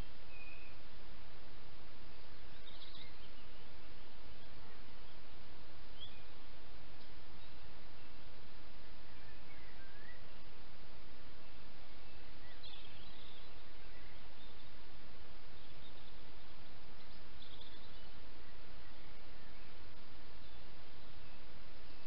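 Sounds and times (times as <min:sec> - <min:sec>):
faint bird chirps: 0:00.0 - 0:22.0
microphone hiss: 0:00.0 - 0:22.0.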